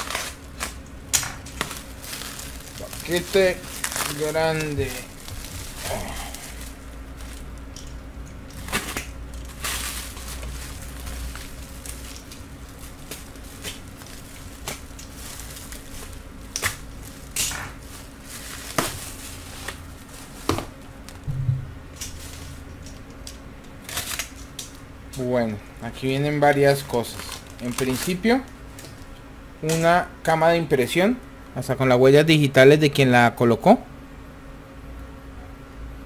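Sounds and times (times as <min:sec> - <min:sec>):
plastic wrap rustling and crinkling: 0:00.0 - 0:21.2, 0:21.9 - 0:24.8, 0:25.9 - 0:29.9.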